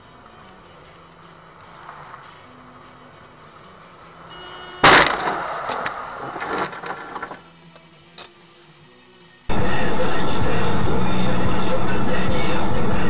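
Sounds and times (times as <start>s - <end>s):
engine and road noise: 0.0s - 13.0s
loud car crash: 4.8s - 7.4s.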